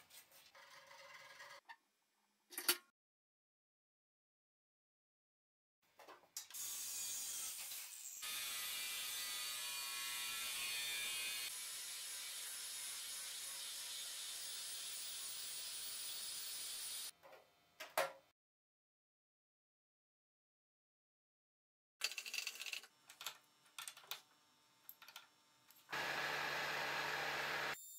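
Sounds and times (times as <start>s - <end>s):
angle grinder grinding metal: 7.3s - 17.1s, 25.9s - 27.9s.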